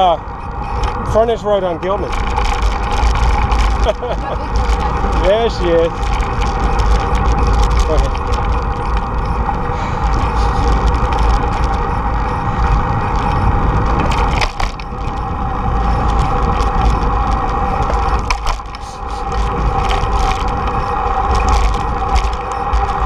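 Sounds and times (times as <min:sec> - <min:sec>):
bike clicks and rattles: 0:00.0 - 0:23.0
tyres rumbling on pavement: 0:00.0 - 0:23.0
wind rushing over microphone: 0:02.0 - 0:23.0.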